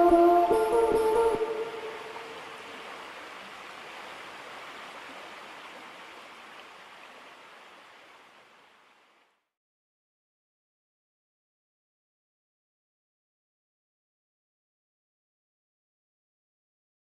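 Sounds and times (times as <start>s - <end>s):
river water flowing: 0.0s - 9.4s.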